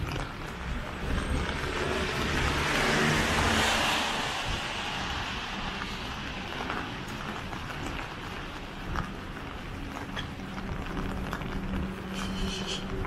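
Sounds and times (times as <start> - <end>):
low rumble of street traffic: 0.0 - 13.0
car driving past: 1.2 - 7.0.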